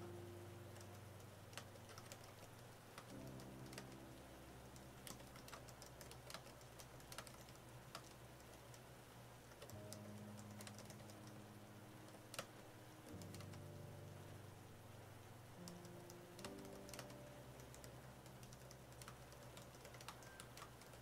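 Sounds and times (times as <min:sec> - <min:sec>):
keyboard key clicks: 0:15.7 - 0:21.0.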